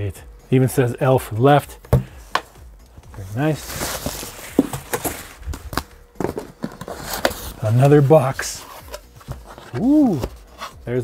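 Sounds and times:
cardboard rustling: 3.2 - 10.8
cardboard scraping and knocking: 3.4 - 7.5.

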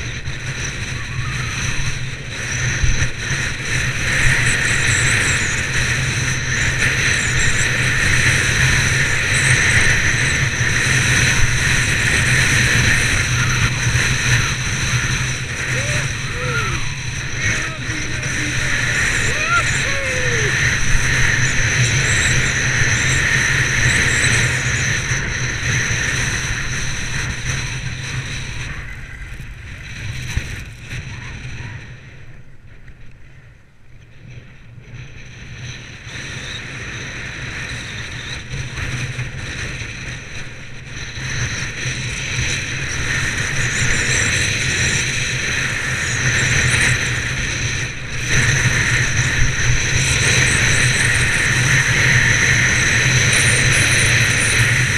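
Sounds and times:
wind buffeting microphone: 0.0 - 54.9
skis carving on packed snow: 1.6 - 32.2.

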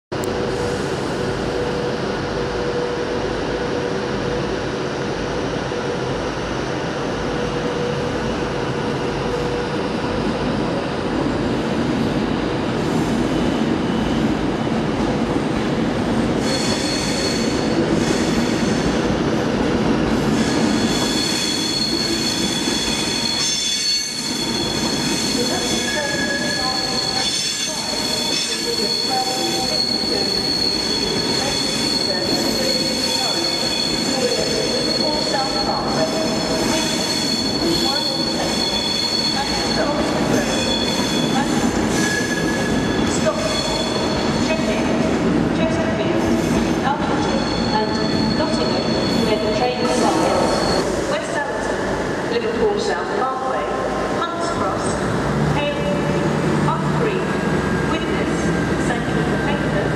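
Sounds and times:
electric train rolling past: 0.2 - 59.9
train wheels squealing: 16.4 - 19.1, 20.2 - 45.0, 46.3 - 51.2.

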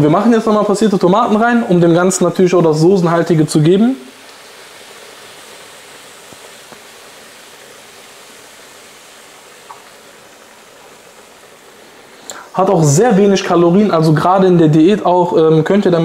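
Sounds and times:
food sizzling in a frying pan: 2.7 - 13.2.

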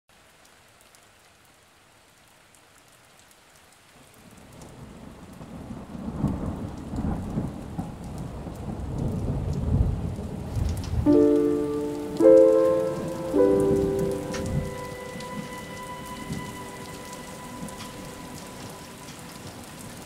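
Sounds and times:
rain falling: 0.1 - 20.0
low rumble of thunder: 4.6 - 20.0.

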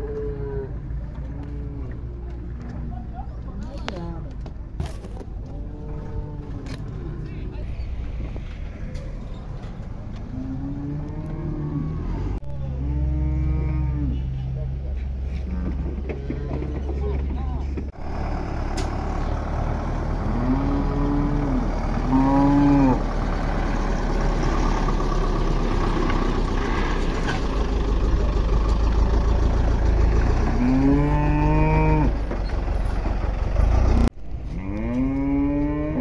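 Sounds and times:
cattle mooing: 0.0 - 2.4, 5.4 - 7.0, 10.3 - 14.3, 15.4 - 17.0, 20.2 - 23.1, 30.5 - 32.2, 34.5 - 36.0.

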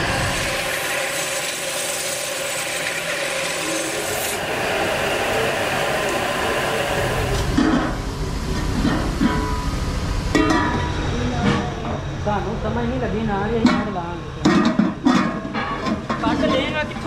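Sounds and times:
cutting tool scraping metal pot: 0.0 - 4.5
lathe running: 0.0 - 14.3.

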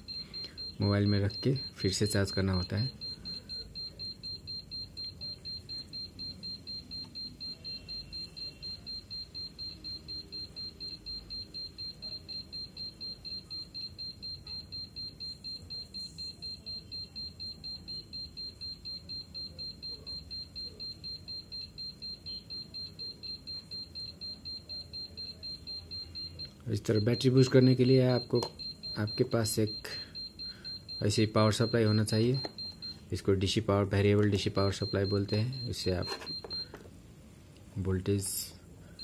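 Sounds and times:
rapid high electronic beeps: 0.0 - 33.3, 34.4 - 36.7.

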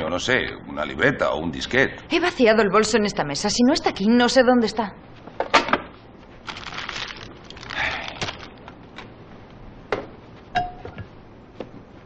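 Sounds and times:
cellophane crinkling: 6.4 - 8.7.

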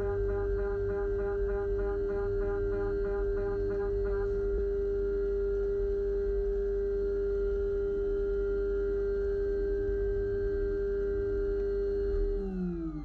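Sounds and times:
low rumble: 0.0 - 4.6
milling machine singing tone: 0.0 - 4.6
pulsing higher tones: 0.0 - 4.6.

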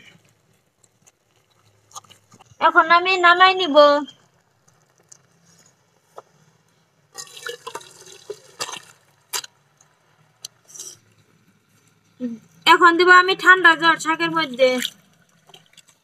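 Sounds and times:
water splashing into colander: 7.2 - 9.5.

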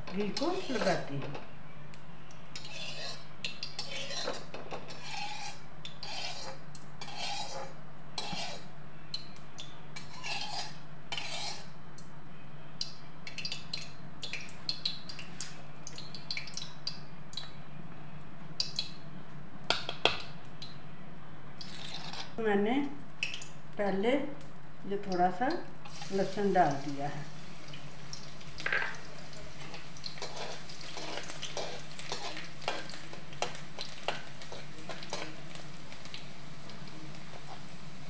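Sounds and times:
metal ladle scraping a metal pan: 2.6 - 8.7, 10.0 - 11.7, 30.1 - 33.5.

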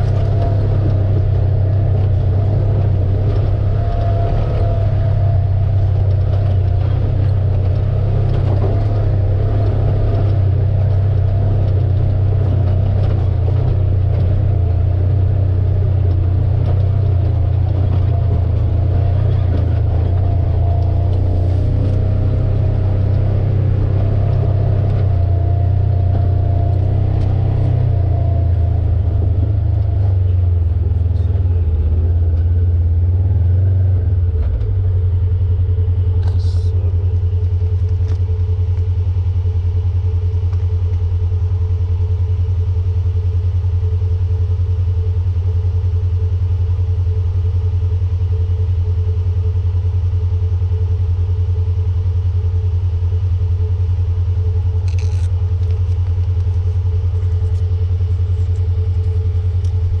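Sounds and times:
utility vehicle engine idling: 0.0 - 60.0.

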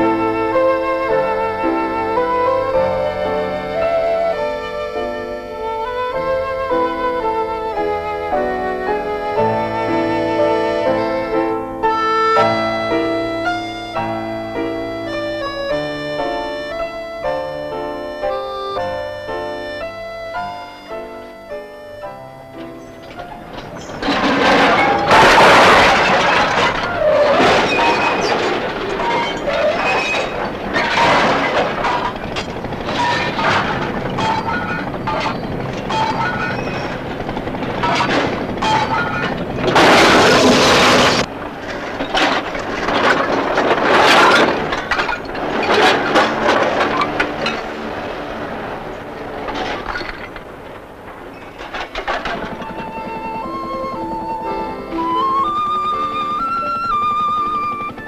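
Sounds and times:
scrap tumbling crash: 19.1 - 58.0
scrap metal clanking: 22.5 - 53.2.

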